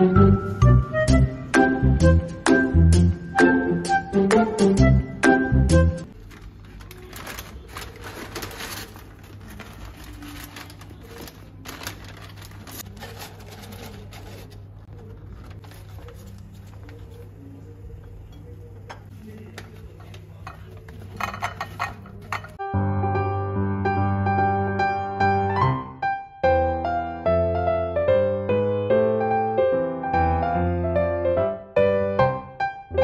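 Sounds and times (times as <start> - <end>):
paper bags rustling: 6.0 - 17.8.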